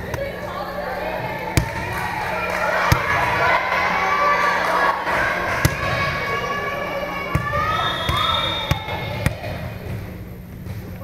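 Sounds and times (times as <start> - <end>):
players chatting in gymnasium: 0.0 - 11.0
volleyball smacking floor and hands: 1.6 - 2.1, 2.8 - 3.4.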